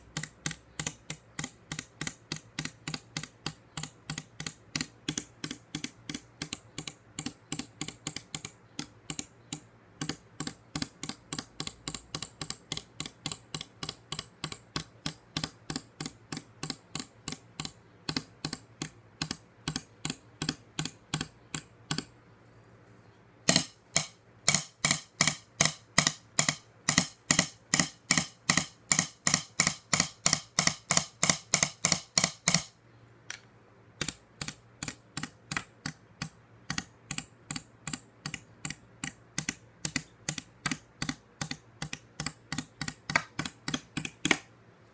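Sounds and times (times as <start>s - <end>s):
drumstick tapping wooden tabletop: 23.5s - 33.4s, 34.0s - 44.5s.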